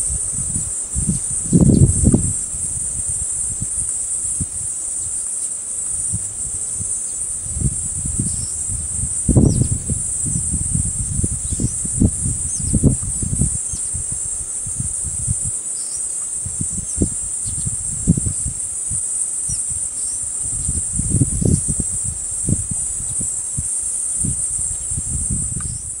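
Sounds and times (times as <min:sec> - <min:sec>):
insects buzzing drone: 0:00.0 - 0:26.0.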